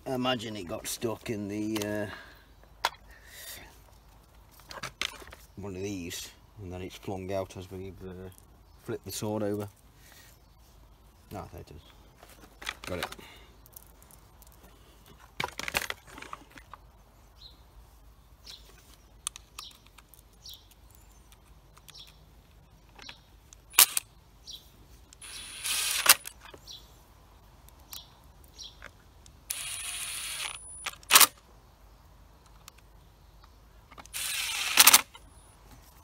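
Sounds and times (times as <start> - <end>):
clicks and knocks of tool parts: 12.3 - 16.8
cordless driver running: 25.2 - 26.3, 29.5 - 31.2, 34.1 - 35.1.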